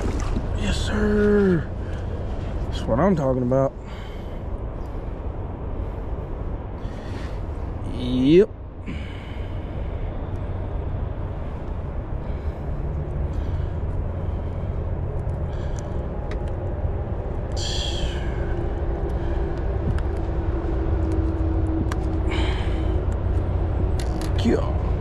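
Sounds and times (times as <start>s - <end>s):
wind buffeting microphone: 8.6s - 25.0s.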